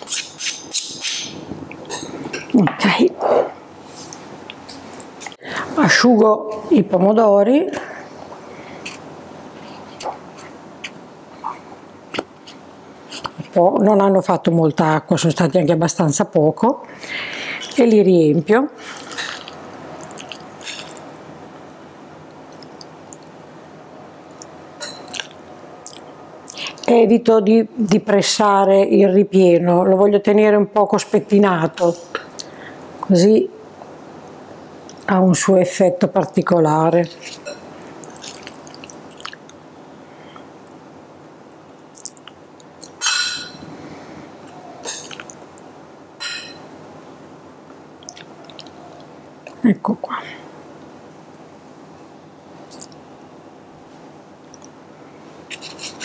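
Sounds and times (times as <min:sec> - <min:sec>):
soft squishing of food: 0:18.9 - 0:23.4, 0:37.2 - 0:39.6, 0:47.3 - 0:49.6.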